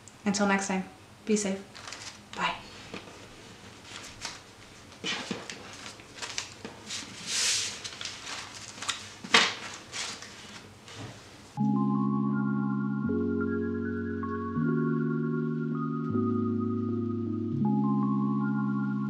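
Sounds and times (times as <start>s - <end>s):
banknotes rustling and sliding: 1.8s - 11.4s.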